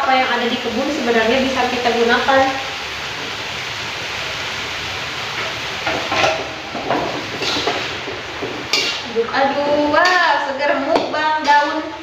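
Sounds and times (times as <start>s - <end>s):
leaves cooking in boiling water: 0.0s - 12.0s
spatula scraping a wok: 5.3s - 11.9s.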